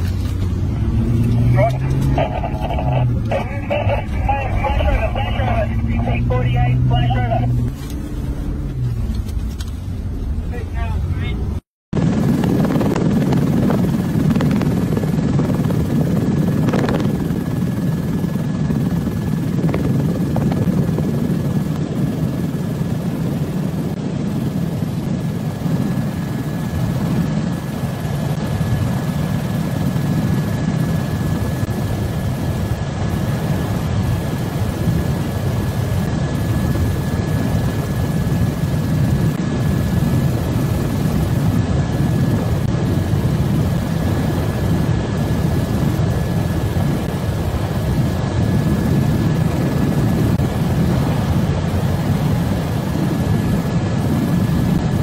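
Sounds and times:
high whine: 0.0 - 18.1
helicopter engine and rotor rumble: 0.0 - 55.0.

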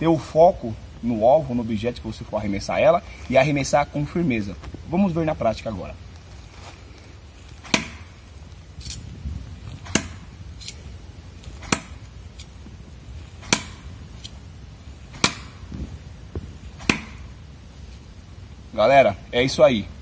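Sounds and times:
knives thunking into tree trunk: 7.6 - 8.2, 9.7 - 10.8, 11.4 - 12.6, 13.4 - 14.4, 15.1 - 15.9, 16.8 - 17.4.

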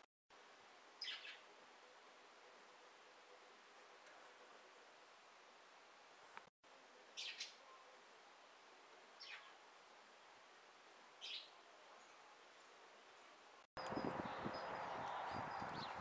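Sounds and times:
songbird chirping: 1.0 - 1.5, 7.2 - 7.9, 9.2 - 9.6, 11.2 - 12.8, 13.8 - 16.0.

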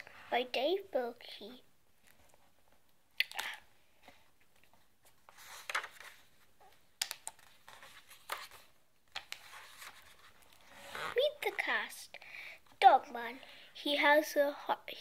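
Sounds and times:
book pages rustling: 4.0 - 11.7.

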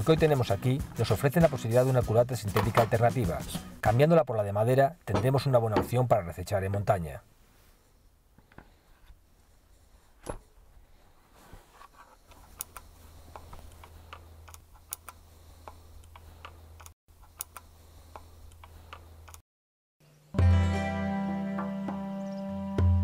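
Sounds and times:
hex key clicking and ticking: 13.8 - 19.4.

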